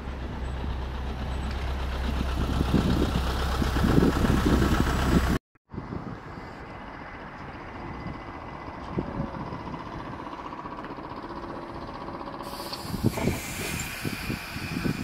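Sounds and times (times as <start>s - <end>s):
trolleybus humming: 0.0s - 15.0s
air hiss: 12.4s - 15.0s.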